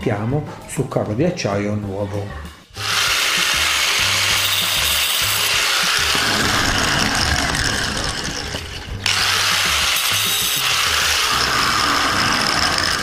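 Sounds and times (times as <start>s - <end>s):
angle grinder cutting steel wire: 2.8s - 13.0s.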